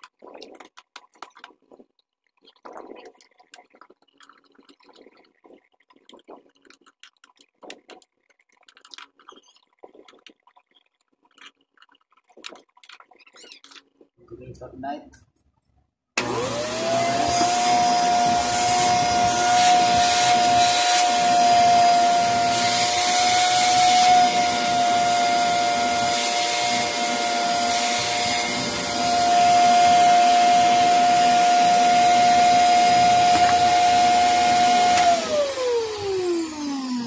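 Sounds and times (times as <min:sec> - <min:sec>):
vacuum cleaner motor whining: 0:16.2 - 0:37.0.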